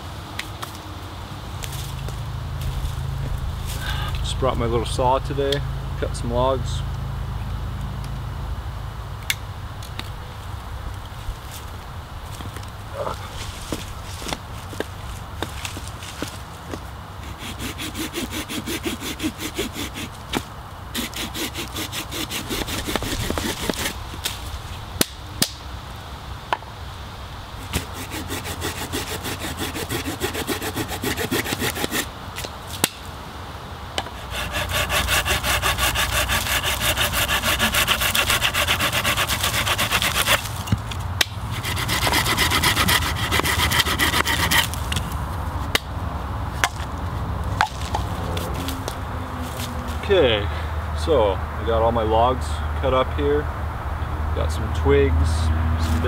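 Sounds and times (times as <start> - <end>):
hand saw cutting branch: 15.4 - 24.4, 27.6 - 33.0, 34.0 - 45.1.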